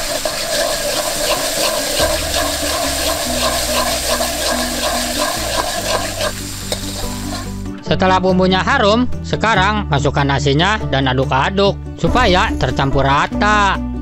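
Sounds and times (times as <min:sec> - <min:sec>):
paste sizzling in hot oil: 0:00.0 - 0:07.7.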